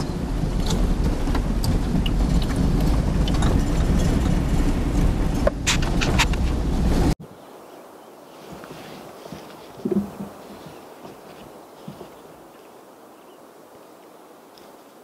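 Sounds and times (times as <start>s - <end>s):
engine and tyres rumbling: 0.0s - 7.2s
knocks and rattles: 0.0s - 7.2s.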